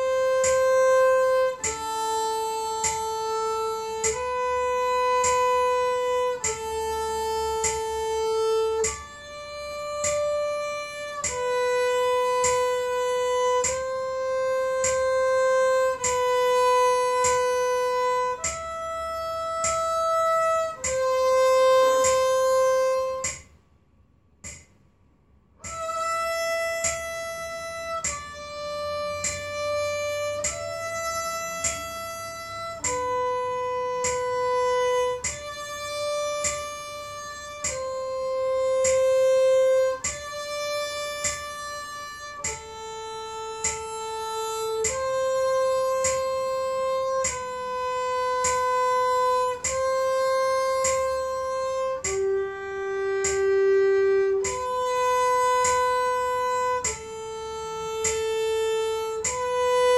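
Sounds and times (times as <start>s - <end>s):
solo violin bowed notes: 0.0s - 23.5s, 25.6s - 59.9s.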